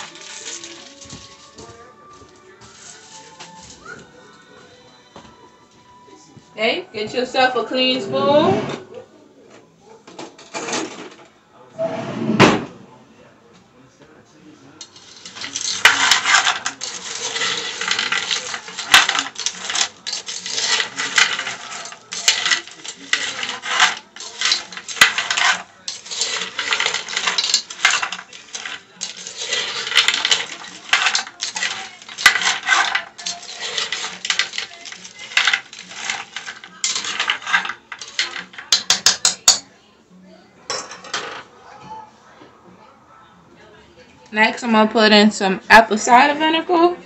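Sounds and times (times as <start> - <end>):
metal spoon scraping a pot: 0.0 - 1.5, 14.8 - 39.7.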